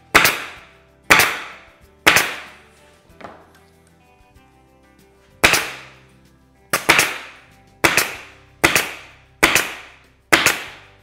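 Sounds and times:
pneumatic stapler firing: 0:00.0 - 0:02.6, 0:05.4 - 0:06.0, 0:06.8 - 0:10.9.

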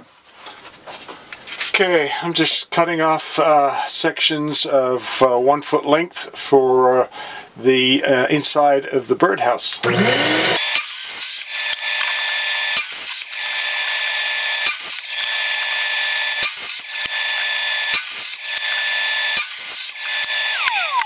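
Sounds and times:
saw motor whining: 0:09.8 - 0:21.0.

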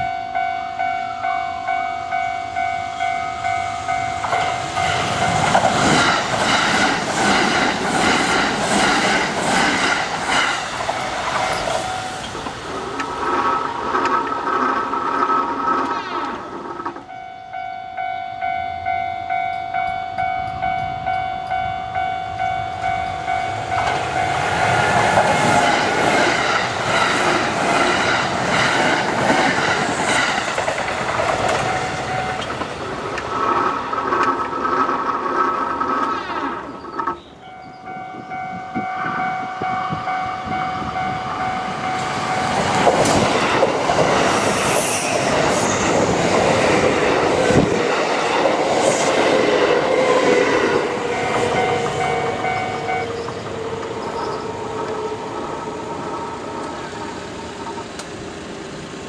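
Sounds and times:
level crossing alarm ringing: 0:00.0 - 0:05.7, 0:11.1 - 0:12.4, 0:17.0 - 0:25.7, 0:31.4 - 0:32.6, 0:37.2 - 0:43.0, 0:50.5 - 0:55.2
train wheels clattering over rails: 0:04.2 - 0:17.1, 0:23.7 - 0:37.2, 0:41.7 - 0:58.2.

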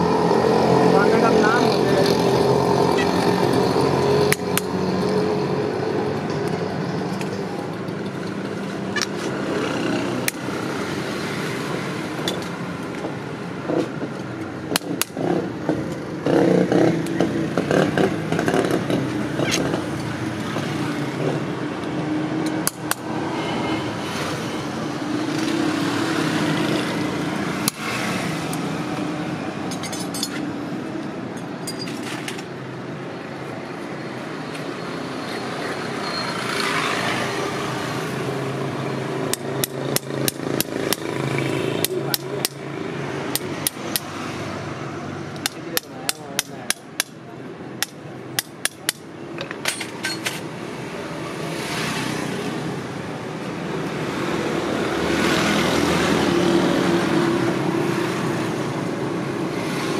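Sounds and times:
traffic engines humming: 0:00.0 - 0:59.9.

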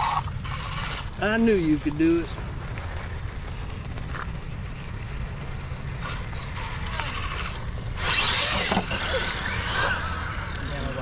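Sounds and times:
electric motor whirring and clicking: 0:00.0 - 0:02.4, 0:05.0 - 0:11.0.

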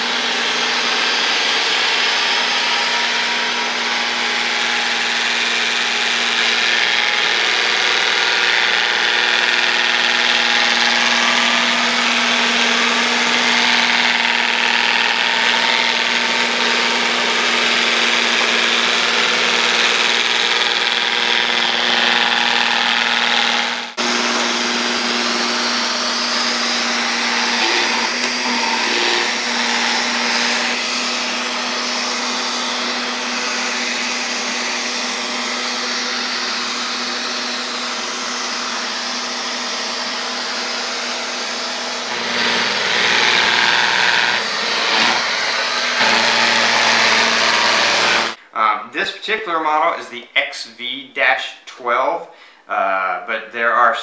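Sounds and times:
robot vacuum whirring: 0:16.5 - 0:48.4.

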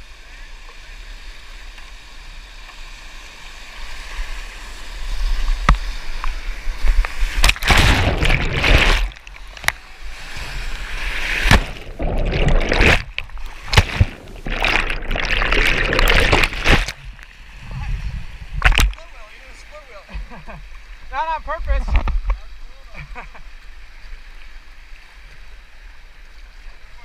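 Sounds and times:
whitewater rushing and splashing: 0:03.6 - 0:18.0.

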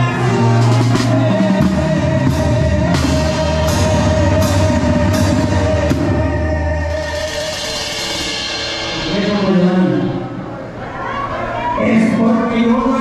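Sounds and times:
tuba bass line: 0:00.0 - 0:10.3
cymbal crashing: 0:07.3 - 0:10.3.

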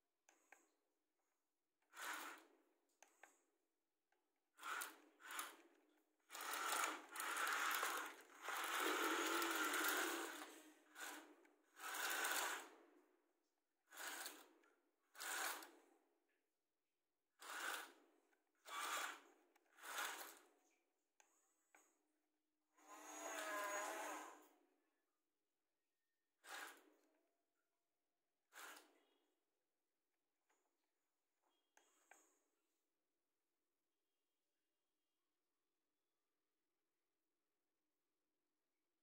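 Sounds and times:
toy excavator motors whirring: 0:01.8 - 0:03.6, 0:04.5 - 0:16.0, 0:17.3 - 0:22.0, 0:22.7 - 0:24.6, 0:26.4 - 0:27.1, 0:28.4 - 0:29.3.

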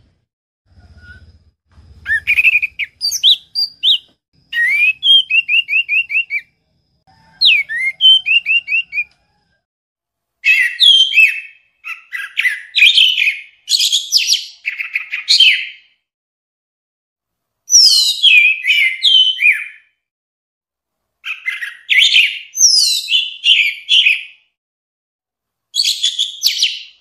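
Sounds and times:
thrush singing whistled notes: 0:00.7 - 0:06.6, 0:07.3 - 0:09.2, 0:10.4 - 0:16.0, 0:17.7 - 0:19.9.

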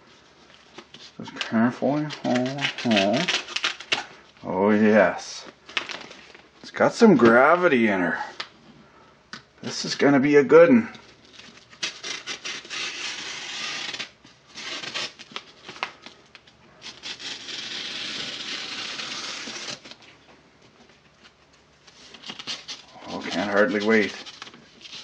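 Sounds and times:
paper crinkling: 0:00.4 - 0:04.2, 0:10.9 - 0:25.0.

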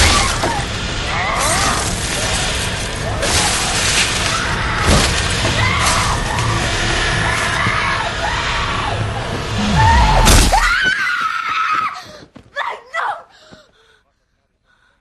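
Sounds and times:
crashes and smashing blows: 0:00.0 - 0:07.8
gliding shrieking tones: 0:00.0 - 0:10.9
loud noisy din: 0:00.0 - 0:11.0.

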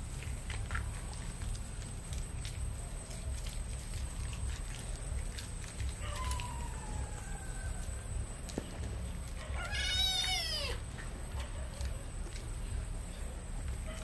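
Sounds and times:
kitten meowing: 0:09.6 - 0:10.8.

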